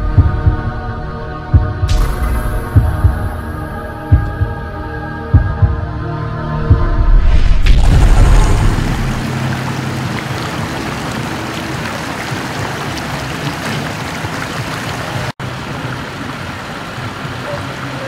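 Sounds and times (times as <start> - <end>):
floodwater rushing: 6.5 - 18.0.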